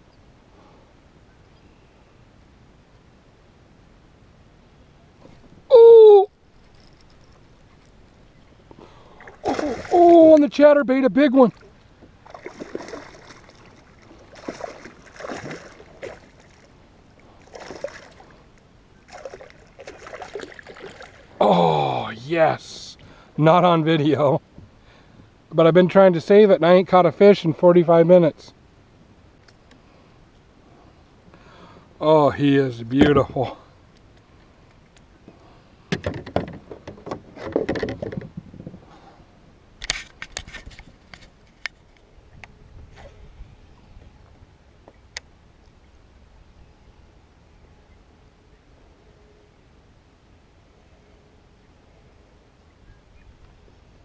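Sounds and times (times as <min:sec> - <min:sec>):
fish splashing at water surface: 0:09.1 - 0:10.1, 0:12.2 - 0:16.6, 0:19.1 - 0:21.3
knocks and rustles in kayak: 0:35.9 - 0:39.1.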